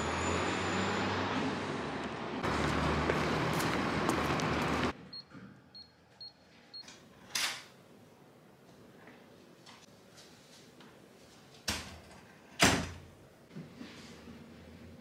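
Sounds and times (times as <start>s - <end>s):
street traffic: 0.0s - 5.4s.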